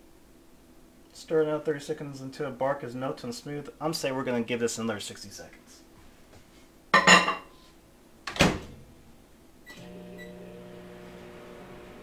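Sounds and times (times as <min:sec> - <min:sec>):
microwave humming: 0:09.7 - 0:12.0.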